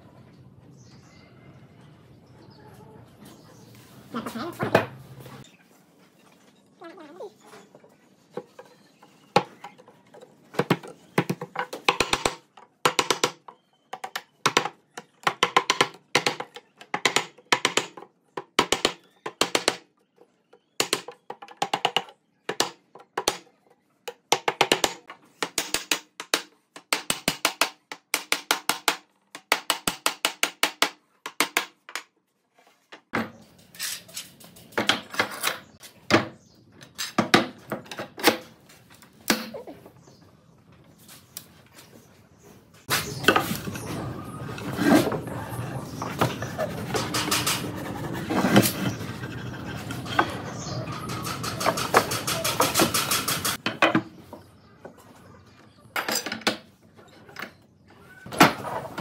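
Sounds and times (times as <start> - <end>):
sharp wooden knocks: 10.5 - 19.9, 20.8 - 23.5, 24.1 - 31.9.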